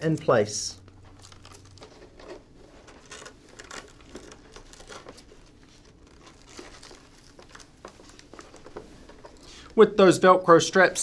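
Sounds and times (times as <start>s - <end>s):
fabric rustling and crinkling: 0.9s - 9.4s.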